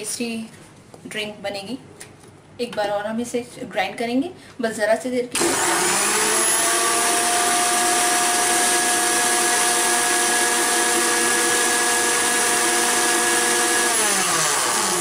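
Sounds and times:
mixer grinder running: 5.4s - 15.0s.

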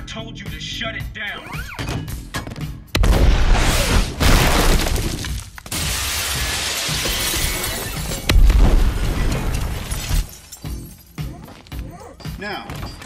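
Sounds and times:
glass shattering: 3.9s - 11.2s.

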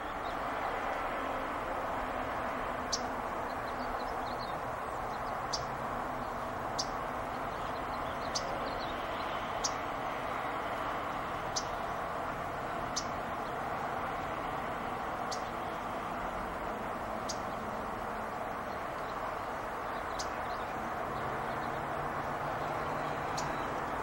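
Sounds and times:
warbler chip calls: 2.8s - 10.4s, 11.3s - 14.3s, 15.0s - 16.0s, 16.9s - 24.0s.

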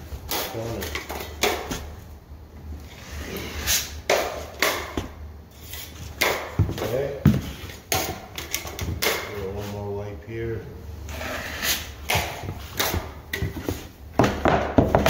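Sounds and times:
taping knife scraping compound: 11.1s - 12.0s.

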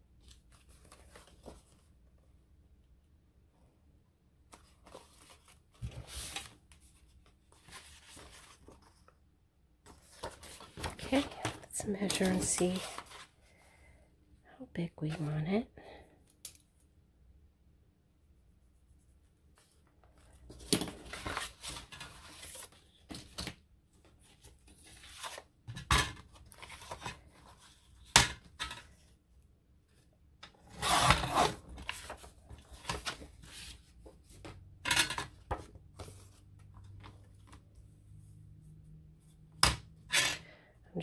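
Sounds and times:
paper rustling and scraping: 4.5s - 9.1s, 9.9s - 13.3s, 19.6s - 23.5s, 24.2s - 25.5s, 30.7s - 34.5s.

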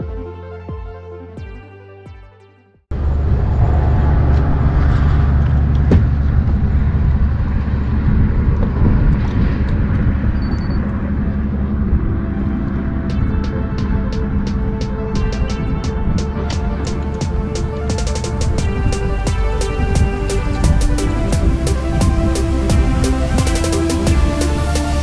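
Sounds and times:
music: 0.0s - 2.9s, 12.3s - 25.0s
wind buffeting microphone: 2.9s - 24.2s.

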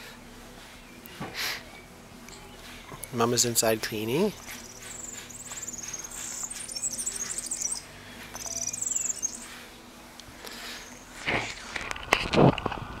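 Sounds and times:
birds chirping trills: 0.8s - 11.2s.

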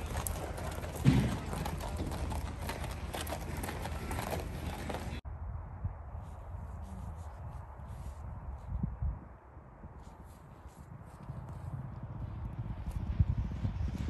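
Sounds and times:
hooves walking on gravel: 0.0s - 5.2s
dull outdoor noise: 0.0s - 14.0s.

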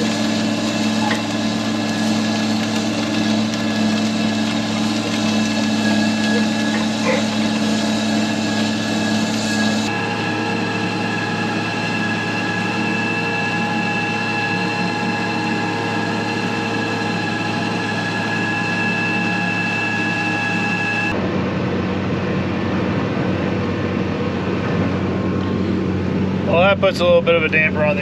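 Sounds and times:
tractor engine under load: 0.0s - 18.7s
high whines: 0.0s - 28.0s.

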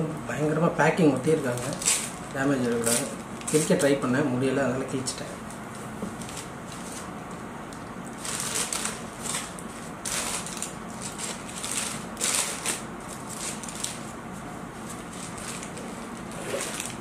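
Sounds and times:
paper packaging tearing and crinkling: 1.1s - 4.0s, 8.2s - 14.1s, 14.8s - 17.0s.

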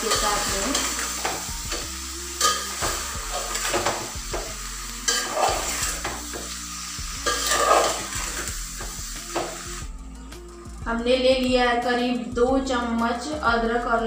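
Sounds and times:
food sizzling: 0.0s - 9.9s
spoon scraping metal pot: 5.0s - 6.0s, 7.2s - 8.5s.

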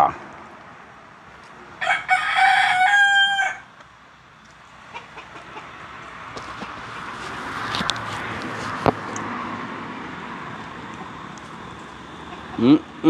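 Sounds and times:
rooster crowing: 1.7s - 3.8s.

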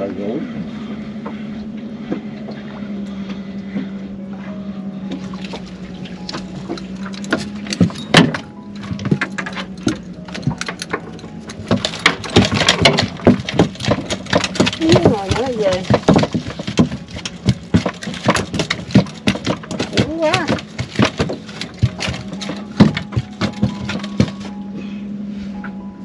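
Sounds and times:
clattering knocks: 5.2s - 24.6s.

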